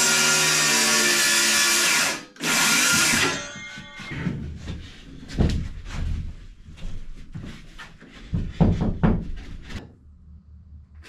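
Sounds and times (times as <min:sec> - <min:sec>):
plywood sheets thumping and knocking: 0:02.8 - 0:06.4, 0:08.2 - 0:09.8.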